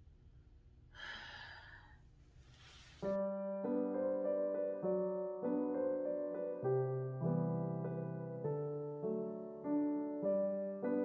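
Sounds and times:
gentle piano music: 3.0 - 11.0.

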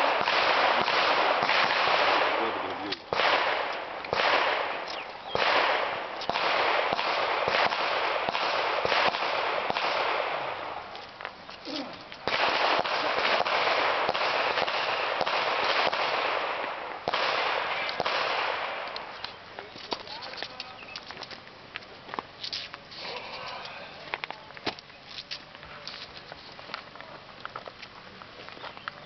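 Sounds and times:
rapid gunfire: 0.0 - 4.8, 5.4 - 10.5, 12.2 - 18.8.

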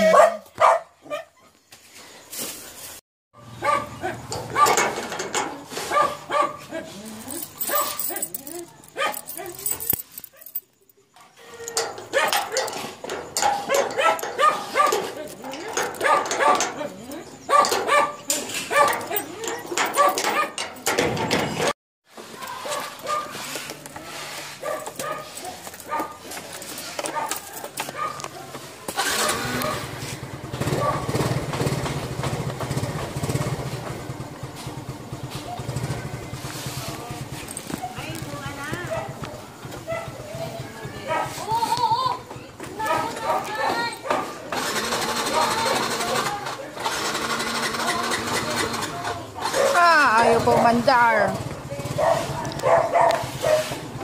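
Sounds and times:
motorcycle engine idling: 29.2 - 41.6, 50.4 - 52.5.

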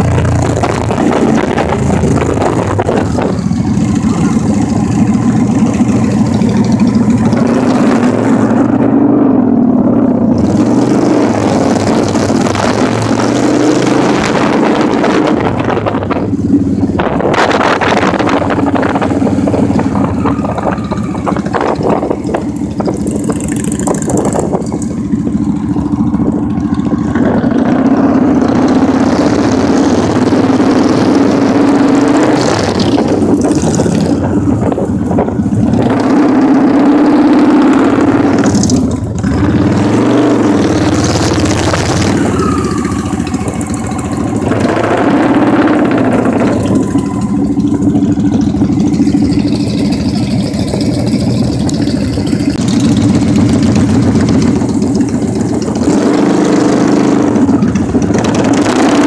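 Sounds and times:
motorcycle engine droning: 0.0 - 59.0
wind noise: 0.0 - 59.0.

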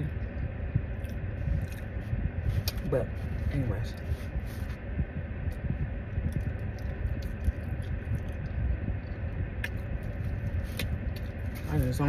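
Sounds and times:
low rumble in car cabin: 0.0 - 12.0
person chewing: 0.9 - 2.9, 6.2 - 11.7.

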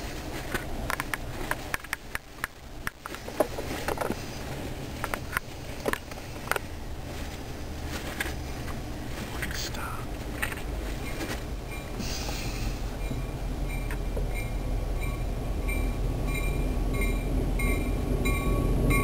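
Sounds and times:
low train rumble: 0.0 - 19.0
train wheels clicking: 10.3 - 19.0.

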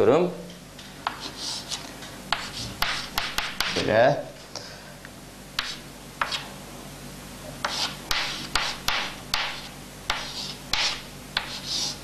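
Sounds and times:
chalk scratching on blackboard: 1.0 - 3.9, 5.6 - 6.5, 7.6 - 12.0.

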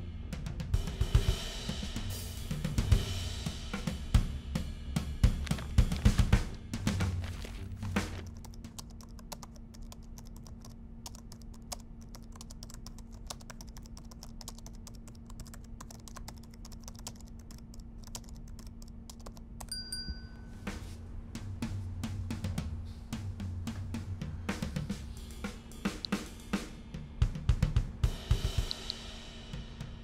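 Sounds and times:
drum-backed music: 0.0 - 8.8, 20.6 - 30.0
laptop keyboard typing: 7.2 - 19.8.

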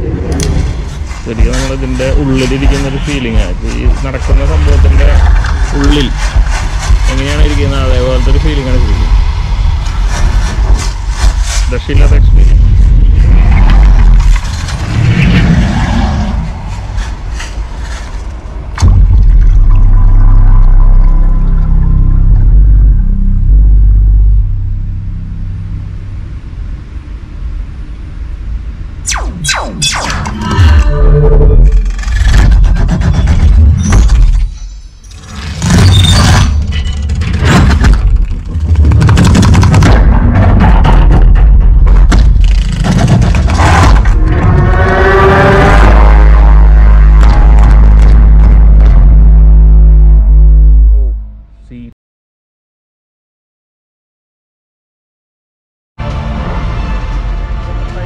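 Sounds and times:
rustling effects: 0.0 - 20.2, 29.1 - 51.0
dense crackling hits: 0.0 - 27.8, 28.8 - 34.6, 35.2 - 51.5
deep rumble: 0.0 - 51.9.

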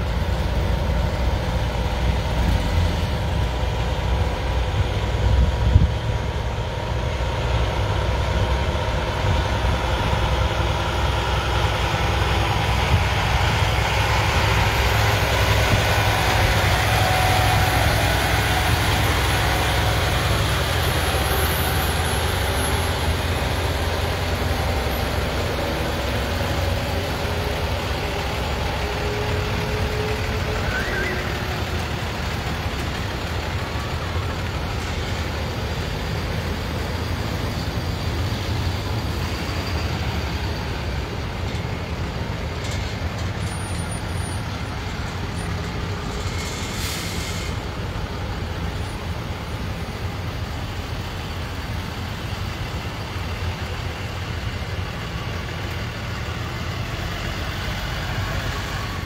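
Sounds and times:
heavy truck engines rumbling: 0.0 - 59.0
road noise: 0.0 - 59.0
short hiss: 46.1 - 47.7.

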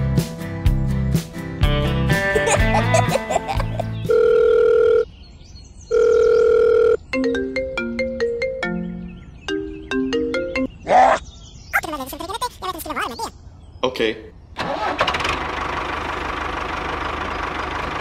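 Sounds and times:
guitar music: 0.2 - 4.1
ringtone tune of electronic notes: 4.0 - 5.0, 5.9 - 10.7.

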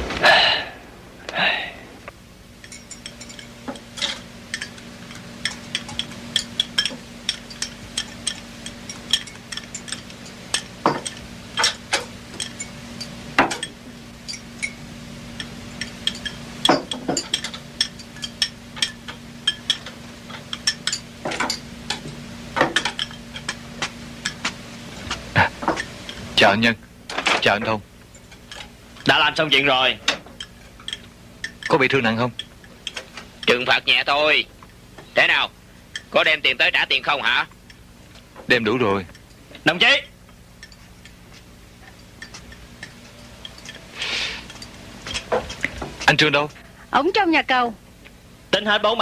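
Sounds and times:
low steady hum: 0.0 - 49.0
chopsticks clinking on bowls: 2.6 - 14.8, 15.4 - 23.6, 28.0 - 33.8, 35.9 - 36.3, 40.6 - 46.2.

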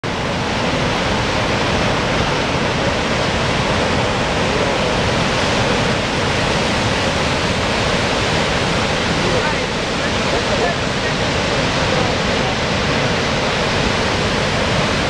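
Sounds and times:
loud rush of falling water: 0.0 - 15.0.

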